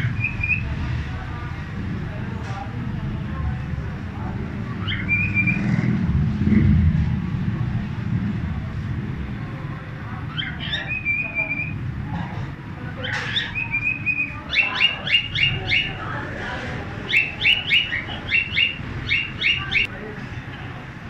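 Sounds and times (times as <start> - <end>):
low street rumble: 0.0 - 21.0
cockatiel whistling: 4.8 - 5.7, 10.3 - 11.8, 13.0 - 16.0, 17.1 - 19.9
cockatiel sharp chirps: 17.1 - 19.9.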